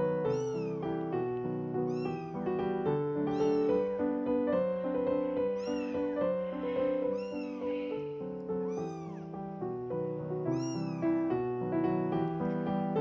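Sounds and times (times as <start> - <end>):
kittens mewing: 0.3 - 0.9, 1.8 - 2.4, 3.3 - 3.9, 5.4 - 9.3, 10.5 - 11.2.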